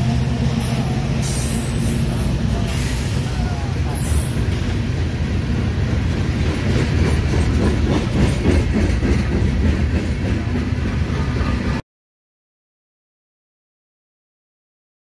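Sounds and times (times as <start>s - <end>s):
freight train rumbling past: 0.0s - 11.8s.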